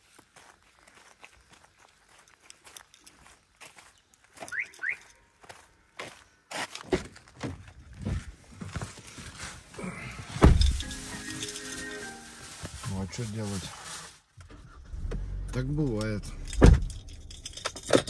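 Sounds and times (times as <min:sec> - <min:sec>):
car alarm chirps: 0:04.5 - 0:05.2
car door shutting: 0:10.4 - 0:10.8, 0:14.4 - 0:17.2.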